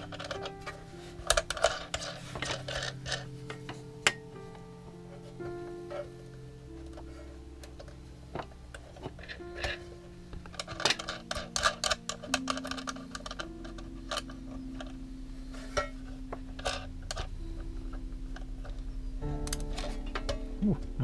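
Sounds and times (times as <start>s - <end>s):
quiet background music: 0.0s - 21.0s
wire leads clicking in terminals: 15.8s - 20.9s.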